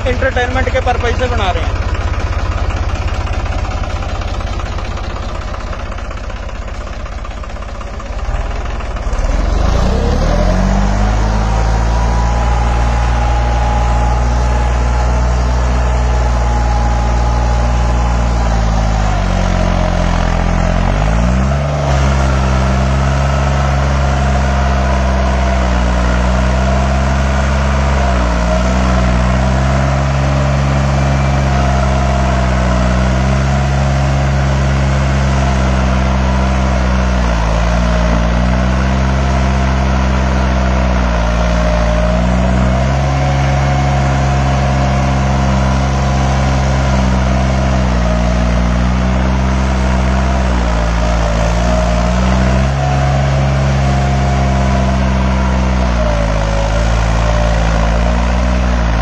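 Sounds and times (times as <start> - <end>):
tractor diesel engine revving: 0.0 - 59.0.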